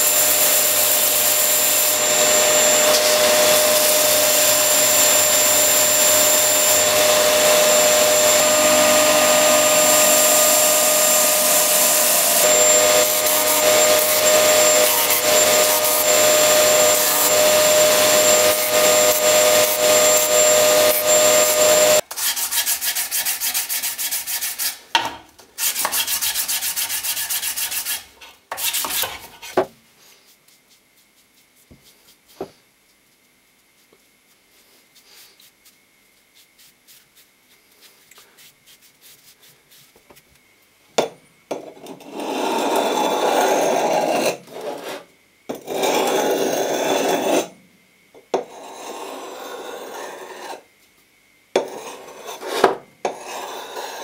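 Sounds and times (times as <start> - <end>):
sander grinding wood: 0.0 - 22.0
motor whine: 0.2 - 22.0.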